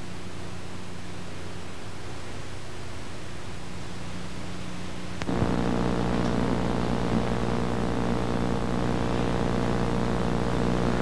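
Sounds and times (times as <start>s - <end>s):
small electric motor humming: 5.2s - 11.0s.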